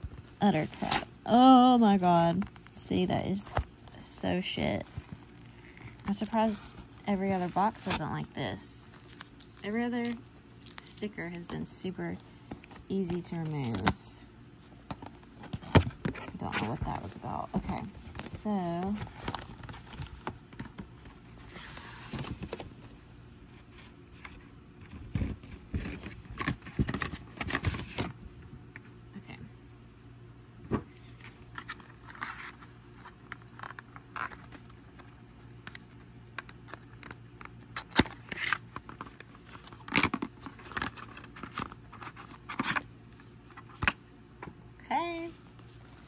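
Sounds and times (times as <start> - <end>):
paper and card rustling: 0.0 - 22.9, 31.0 - 44.0
low steady hum: 0.0 - 46.0.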